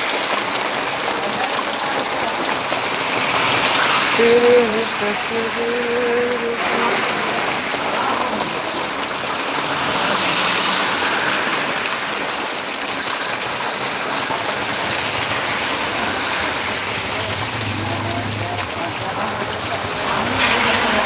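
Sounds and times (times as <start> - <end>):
heavy rain pouring on road: 0.0 - 21.0.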